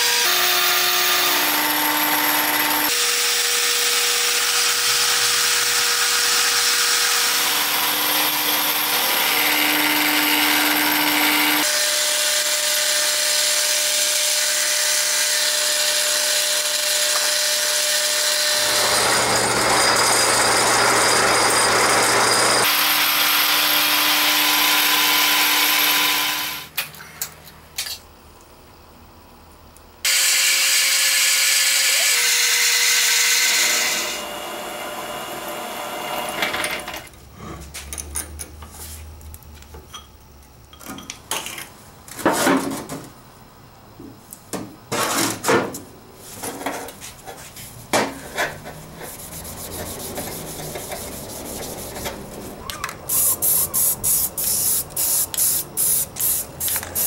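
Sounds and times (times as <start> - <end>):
lathe drilling steel: 0.0 - 26.7, 30.1 - 37.1
spray paint can hissing: 53.1 - 57.0.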